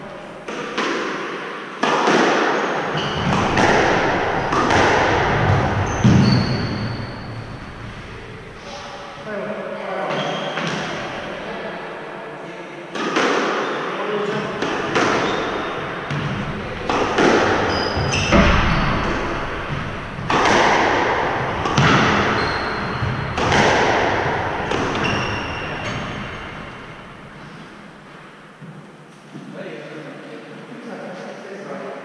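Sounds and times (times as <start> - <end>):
squash ball cracking off walls: 0.5 - 7.3, 14.5 - 27.0
sneaker squeaks on wooden floor: 2.9 - 8.5, 10.1 - 11.2, 13.5 - 28.0.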